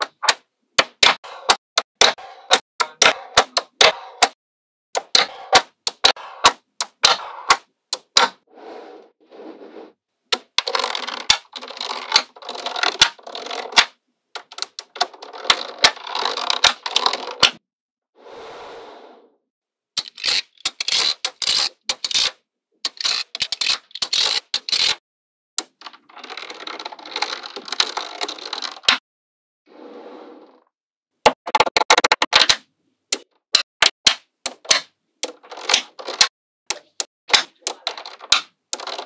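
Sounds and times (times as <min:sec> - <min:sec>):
magnetic balls clicking together: 0:31.5 - 0:39.0.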